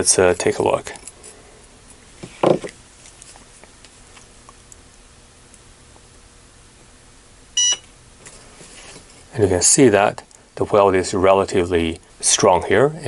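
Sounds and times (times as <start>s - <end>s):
spot welder beep: 7.6s - 7.9s.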